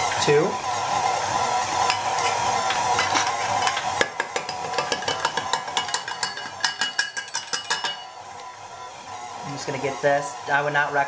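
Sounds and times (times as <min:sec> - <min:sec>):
stand mixer motor whine: 0:00.0 - 0:05.8, 0:08.2 - 0:11.0.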